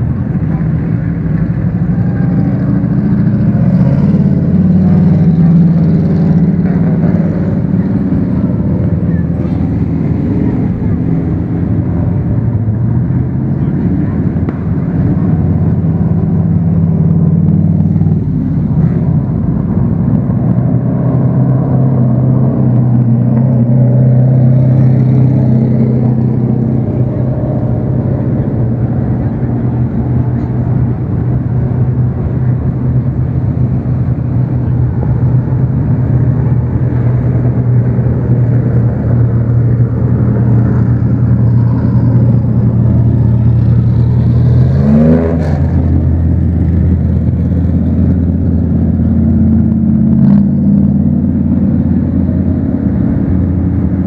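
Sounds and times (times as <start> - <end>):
race car engines droning: 0.0 - 54.0.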